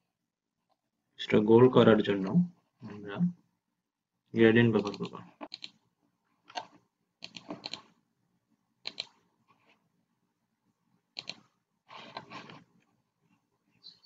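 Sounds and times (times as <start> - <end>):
computer mouse clicking: 4.8 - 5.8, 6.5 - 8.0, 8.8 - 9.2, 11.1 - 11.5.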